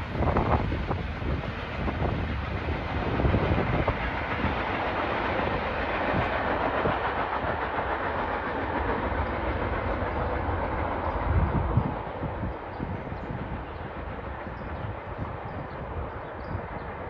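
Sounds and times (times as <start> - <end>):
freight train cars rolling on rails: 0.0 - 17.0.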